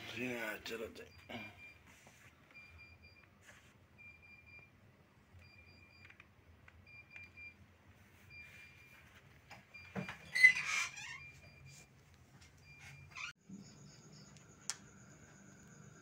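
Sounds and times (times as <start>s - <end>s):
faint electronic beeping: 0.1s - 3.4s.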